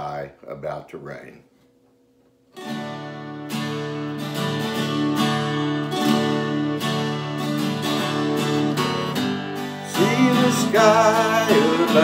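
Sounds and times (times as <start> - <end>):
acoustic guitar strummed slowly: 2.5 - 12.0.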